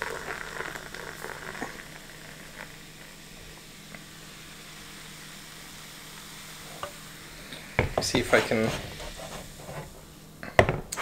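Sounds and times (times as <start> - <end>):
drink pouring into glass: 0.0 - 4.0
carbonated drink fizzing: 0.0 - 10.0.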